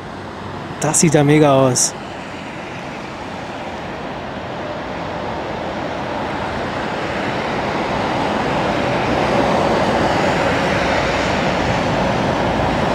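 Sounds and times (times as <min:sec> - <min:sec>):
jet engines roaring: 0:00.6 - 0:12.9.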